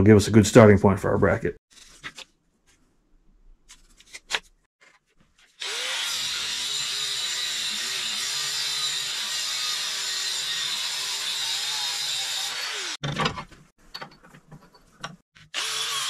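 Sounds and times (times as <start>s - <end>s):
angle grinder cutting steel: 5.6s - 13.0s, 15.4s - 16.0s.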